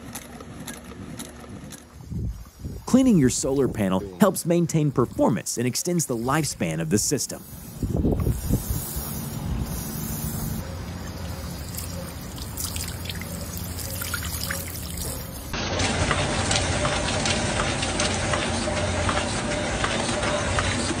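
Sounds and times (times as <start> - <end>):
loud hissing noise: 5.1 - 11.0
water trickling over panels: 10.4 - 15.6.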